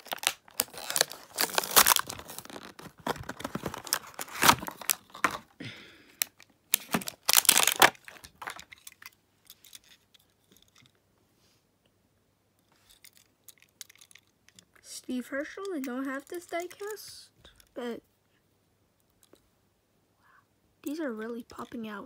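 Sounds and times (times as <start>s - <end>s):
plastic package tearing and crinkling: 0.0s - 5.5s, 6.2s - 9.1s.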